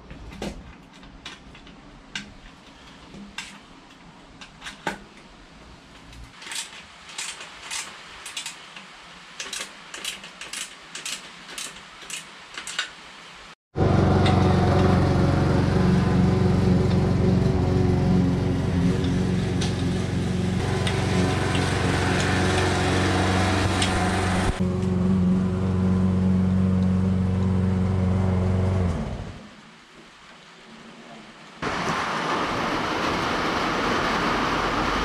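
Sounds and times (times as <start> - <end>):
loud steady drone: 13.8 - 29.4.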